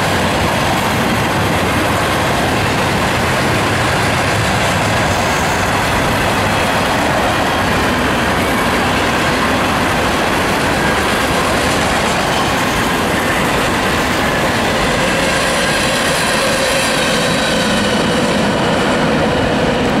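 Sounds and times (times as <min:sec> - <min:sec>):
freight train wheels on rails: 0:00.0 - 0:20.0.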